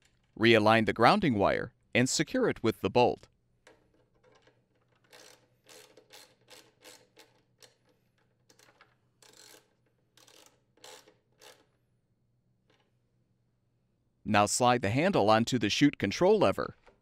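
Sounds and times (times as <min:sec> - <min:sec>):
ratchet wrench clicking: 0:04.4 - 0:07.9, 0:08.5 - 0:11.7.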